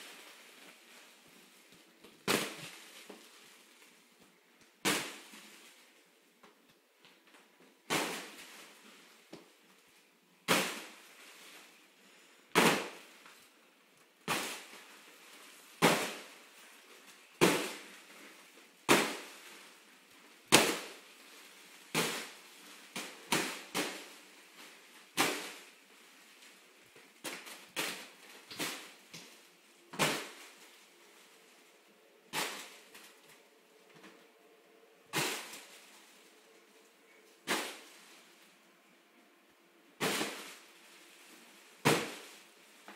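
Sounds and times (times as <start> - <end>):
hands slapping foil balloon: 2.0 - 3.9, 4.6 - 5.5, 12.5 - 13.4, 14.2 - 15.0, 17.2 - 19.8, 20.4 - 30.9, 32.3 - 33.5, 35.1 - 36.4, 37.0 - 38.1, 40.0 - 42.9.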